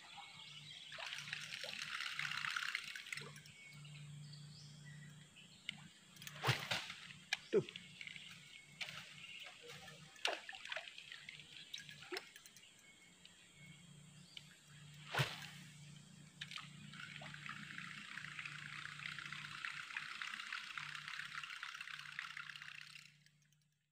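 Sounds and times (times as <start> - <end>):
lure churning water: 0.8 - 3.7, 6.2 - 13.0, 16.4 - 23.6
lure smacking water: 10.1 - 12.7
fishing reel clicks: 17.0 - 23.7.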